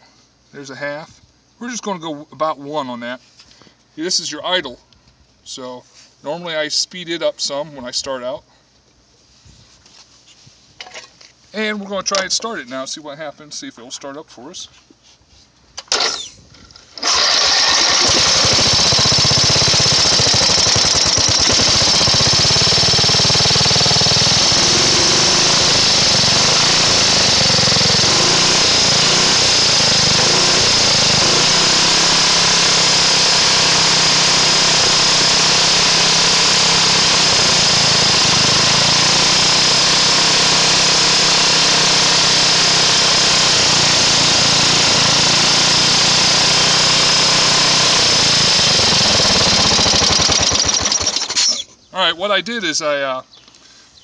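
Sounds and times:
small engine cranking: 15.8s - 16.4s, 17.0s - 51.7s
small engine running: 17.0s - 51.6s.

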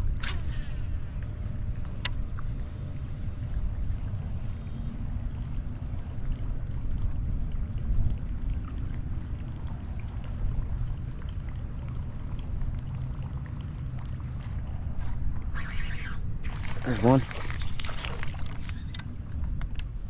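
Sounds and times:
wind rumbling on microphone: 0.0s - 20.0s
water lapping against boat hull: 4.0s - 20.0s
short splash: 15.6s - 18.9s.

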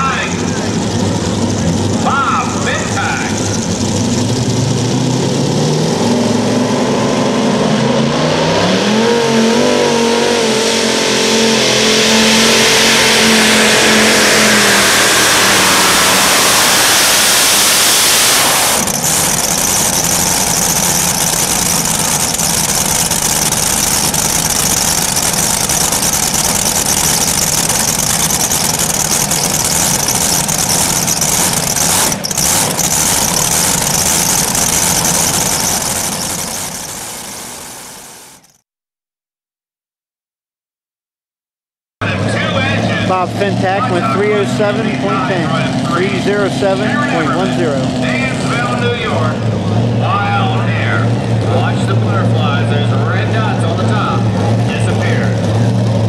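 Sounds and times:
pulling tractor engines roaring: 0.0s - 38.5s, 42.0s - 56.0s.

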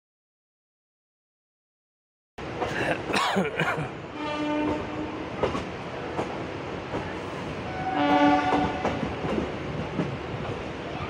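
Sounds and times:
train rumbling: 2.4s - 11.0s
train horn: 4.1s - 5.3s, 7.7s - 9.0s
train wheel clicks: 5.4s - 7.1s, 8.5s - 10.6s.

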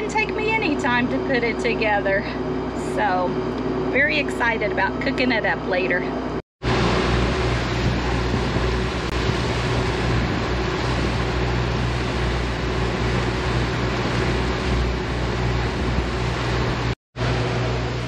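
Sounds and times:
boat engines droning: 0.0s - 18.0s
rush of wind and water: 6.6s - 17.0s.

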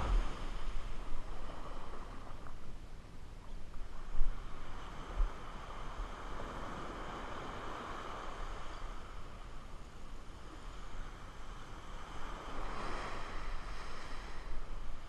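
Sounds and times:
surf washing up a beach: 0.0s - 2.8s, 3.8s - 15.0s
wind on microphone: 0.0s - 2.8s, 3.5s - 9.4s.

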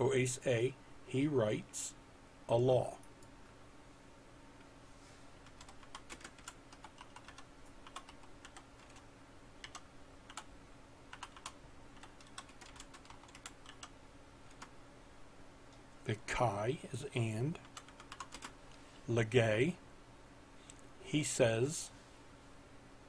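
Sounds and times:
keyboard typing: 5.4s - 9.0s, 9.6s - 10.5s, 11.1s - 13.9s, 14.5s - 14.7s, 17.6s - 18.6s.

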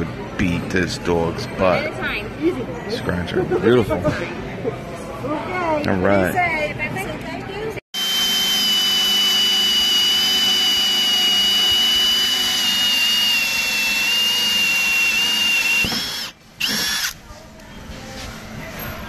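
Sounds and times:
drill hole saw cutting wood: 8.0s - 17.2s.

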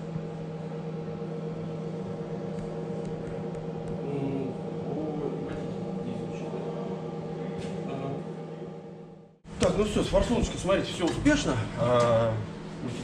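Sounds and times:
steady electric hum: 0.0s - 13.0s.

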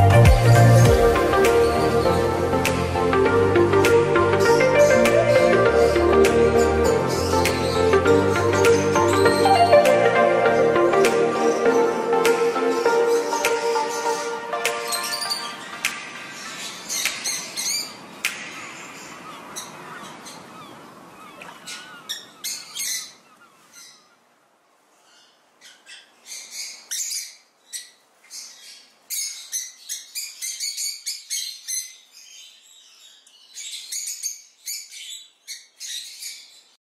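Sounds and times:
background music: 0.0s - 16.2s
lovebirds chirping: 0.0s - 24.3s, 25.0s - 36.8s.

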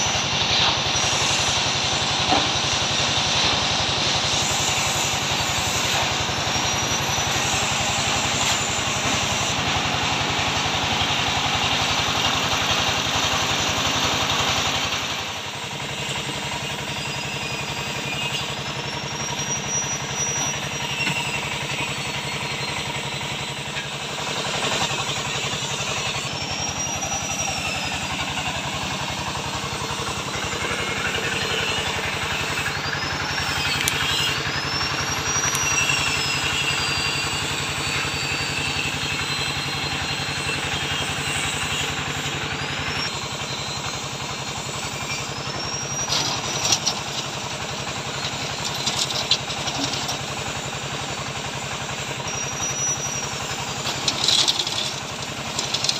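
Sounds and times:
concrete mixer engine running: 0.0s - 55.9s
high rising and falling whistle: 16.6s - 47.1s.

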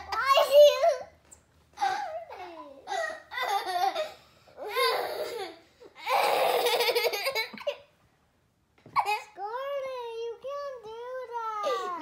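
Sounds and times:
young girls laughing: 2.9s - 7.9s.

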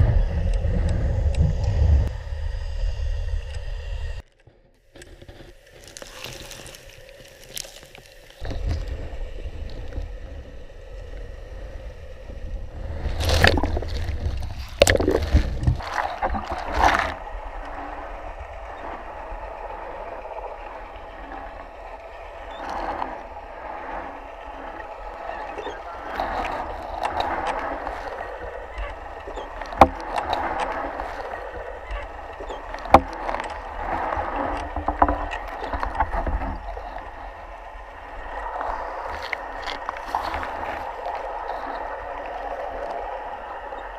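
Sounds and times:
low underwater rumble: 0.0s - 4.2s, 5.9s - 43.9s
gurgling water: 5.5s - 43.9s
knocks and splashes: 13.0s - 17.2s, 26.0s - 37.0s.

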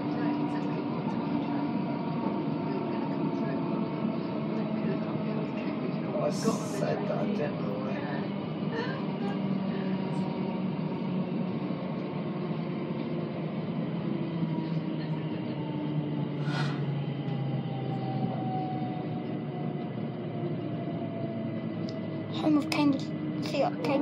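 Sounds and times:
train wheels rumbling on track: 0.0s - 24.0s
train motor whine: 8.8s - 24.0s.

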